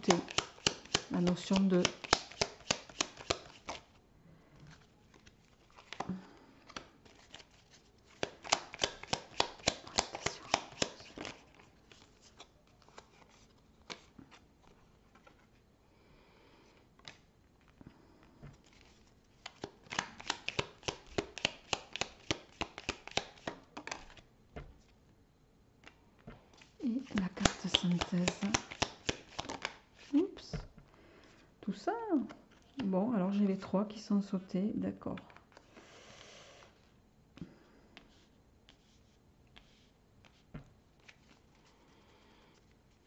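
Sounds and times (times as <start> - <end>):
cards shuffling: 0.0 - 4.0, 4.7 - 15.6, 18.5 - 24.9, 25.8 - 30.5, 38.0 - 41.8
handling of cards: 0.0 - 4.0, 4.6 - 15.6, 17.0 - 25.0, 25.8 - 30.6, 38.0 - 43.0.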